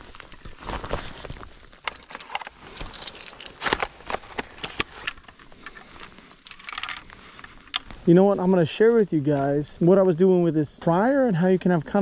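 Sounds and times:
rifle cartridges clicking and jingling: 0:01.7 - 0:08.0
small metallic clinks: 0:01.8 - 0:04.2, 0:05.1 - 0:07.9.

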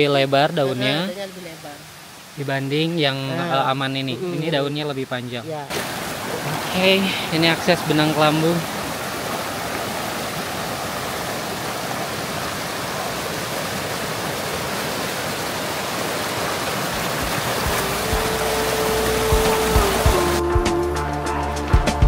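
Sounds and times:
water flowing: 0:00.0 - 0:20.8
music with low beats: 0:17.7 - 0:22.0.

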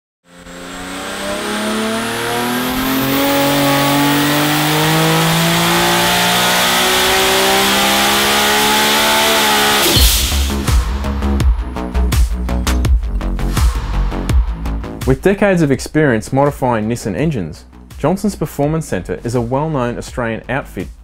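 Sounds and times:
engine revving under load: 0:00.2 - 0:12.0
high turbo whine: 0:00.2 - 0:15.1.

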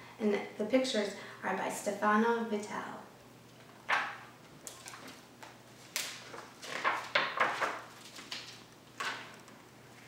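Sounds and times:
book pages turning: 0:03.9 - 0:10.0.

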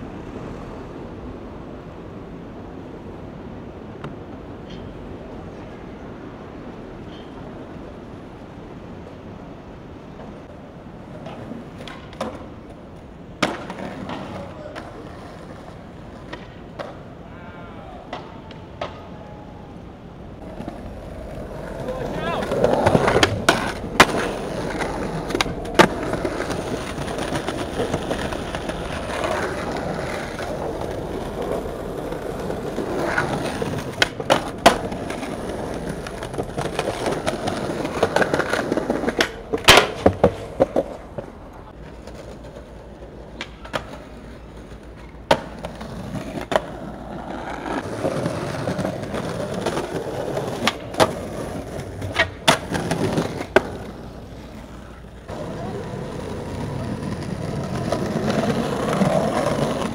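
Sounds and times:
skateboard wheels rolling on concrete: 0:00.0 - 0:59.9
skateboard wooden clacks: 0:11.0 - 0:17.1, 0:18.1 - 0:19.3, 0:20.4 - 0:59.9.

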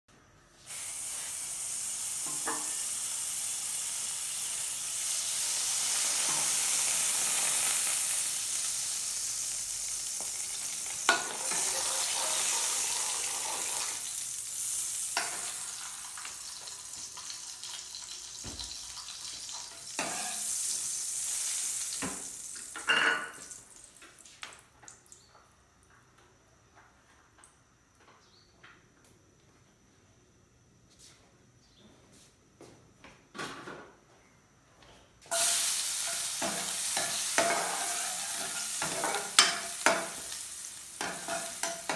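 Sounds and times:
oil sizzling in a frying pan: 0:00.6 - 0:24.6, 0:35.3 - 0:41.9
metal ladle scraping a pan: 0:20.0 - 0:20.5, 0:35.3 - 0:40.2.

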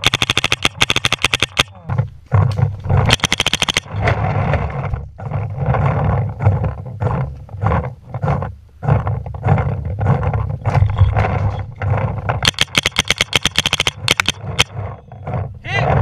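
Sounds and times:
paintball marker firing shots: 0:00.0 - 0:01.7, 0:12.4 - 0:14.7.

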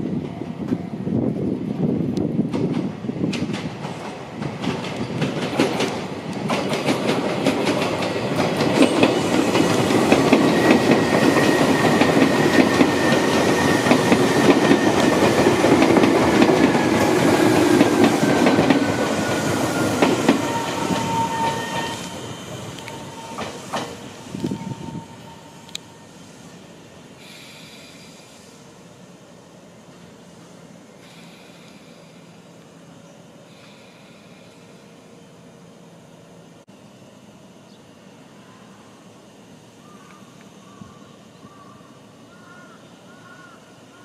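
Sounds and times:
electric train passing: 0:00.0 - 0:44.0
train whine falling in pitch: 0:08.4 - 0:26.4.

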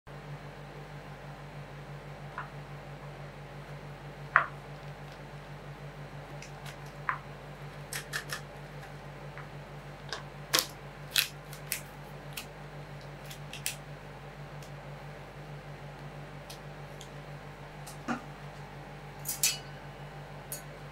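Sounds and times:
low pulsing hum: 0:00.1 - 0:20.9
sharp clicks and cracks: 0:07.9 - 0:08.5, 0:10.1 - 0:13.8.

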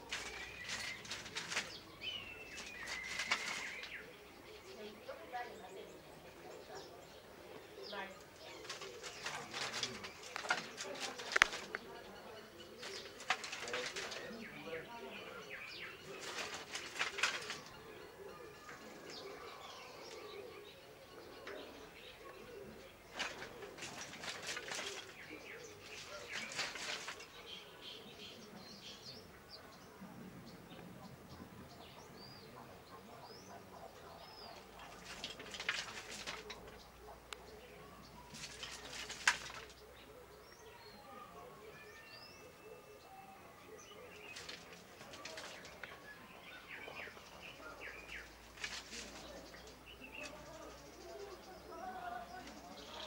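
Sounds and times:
birds whistling: 0:00.0 - 0:04.4
low repeated bird call: 0:00.0 - 0:05.2
low wavering bird coos: 0:00.0 - 0:53.0.

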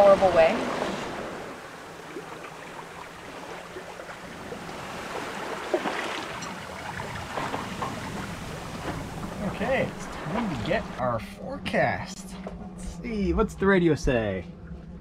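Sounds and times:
water splashing past hull: 0:00.0 - 0:11.0
wind: 0:00.0 - 0:15.0.

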